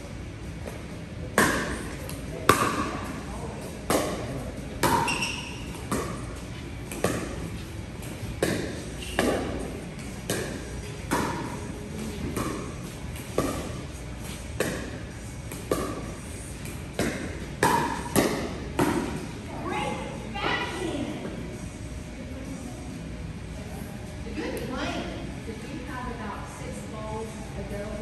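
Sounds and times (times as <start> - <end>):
paddles hitting plastic ball: 3.6 - 19.2.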